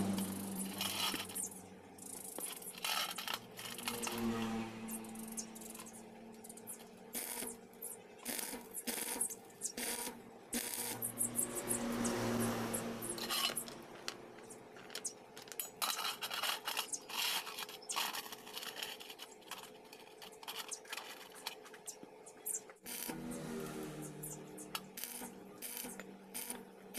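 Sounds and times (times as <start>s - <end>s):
rustling scrape: 0.0s - 6.0s, 12.6s - 22.0s.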